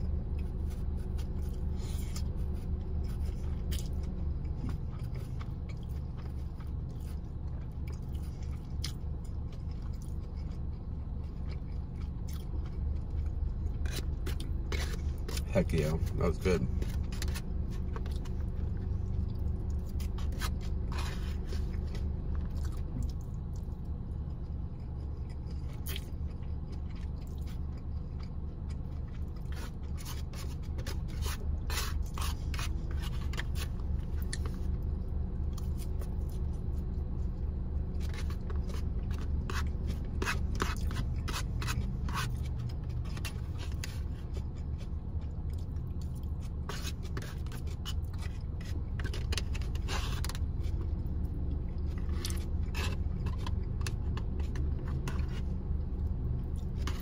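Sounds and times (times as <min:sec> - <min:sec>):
chewing noodles: 0:00.0 - 0:57.0
low hum: 0:00.0 - 0:57.0
plastic fork scraping foam container: 0:14.7 - 0:17.4.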